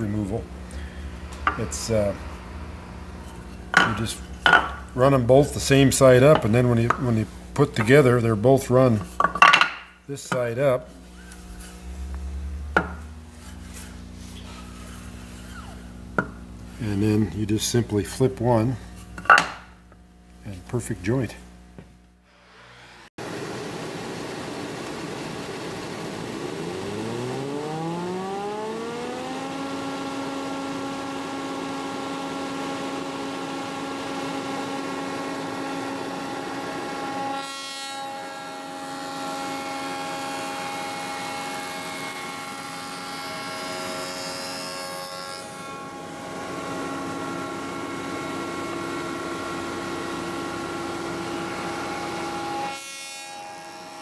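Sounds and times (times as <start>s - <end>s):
spindle shaper whine: 0.0s - 23.1s, 24.8s - 31.3s
board fed through power feeder: 22.4s - 54.0s.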